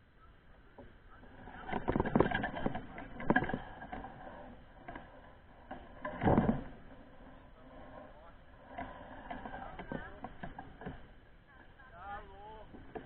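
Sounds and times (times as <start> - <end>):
mountain bike clattering and rattling: 1.2 - 7.3.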